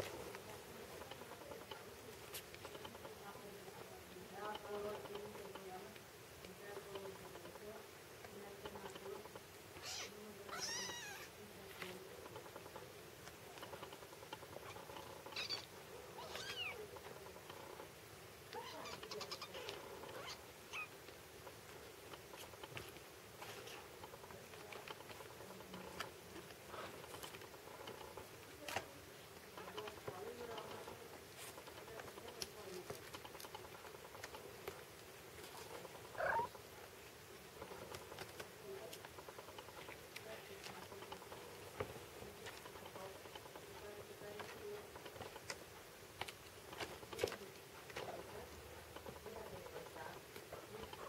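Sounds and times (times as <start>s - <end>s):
claws scratching on blanket: 0.0s - 51.0s
kittens mewing: 9.7s - 11.4s, 14.5s - 17.7s, 18.5s - 21.0s, 35.8s - 36.6s
kitten mewing: 9.8s - 11.3s, 36.2s - 36.5s.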